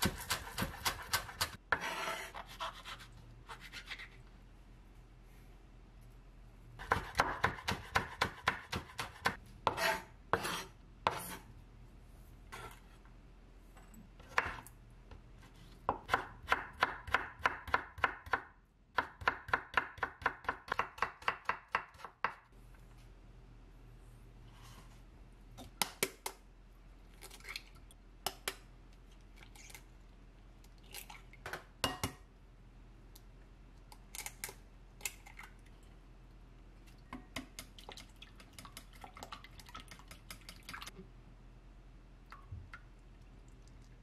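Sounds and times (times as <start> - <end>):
knife scraping on cutting board: 0.0 - 4.2, 9.7 - 11.5.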